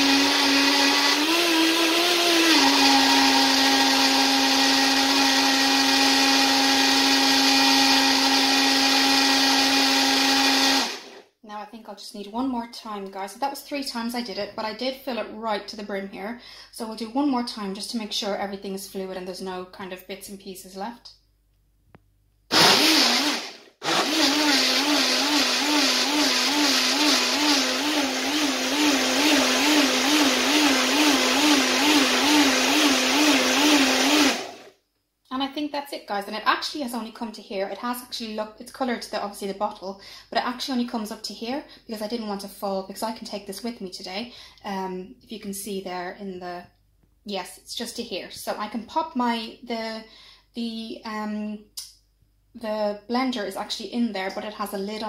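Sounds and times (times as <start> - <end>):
blender motor running: 0.0 - 11.3, 22.5 - 34.8.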